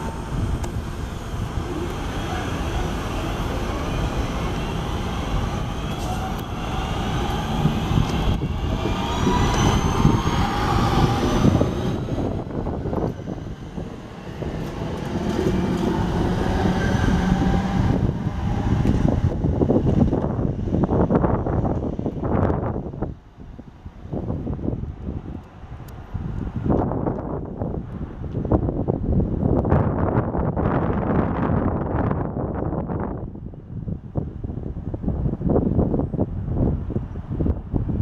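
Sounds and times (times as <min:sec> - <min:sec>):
electric train motors whining: 0:00.0 - 0:20.8
train wheels rumbling on track: 0:00.0 - 0:33.2.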